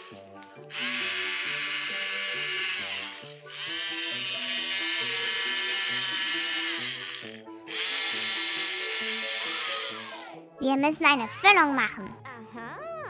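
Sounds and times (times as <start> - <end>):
toy drill whirring: 0.0 - 10.4
background music: 0.0 - 13.0.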